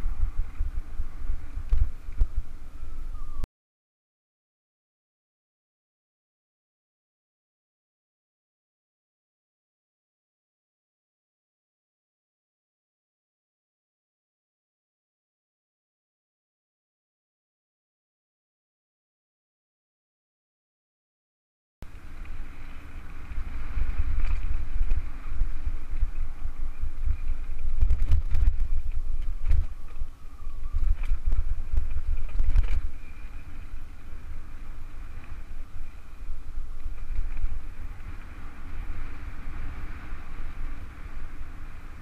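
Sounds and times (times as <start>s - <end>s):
tyres rumbling over dirt trail: 0.0s - 3.4s, 21.8s - 42.0s
wind buffeting microphone: 0.0s - 3.4s, 21.8s - 42.0s.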